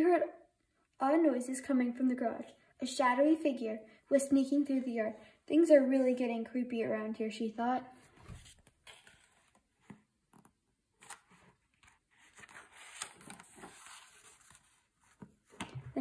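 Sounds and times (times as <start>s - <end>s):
book pages turning: 8.1s - 15.9s.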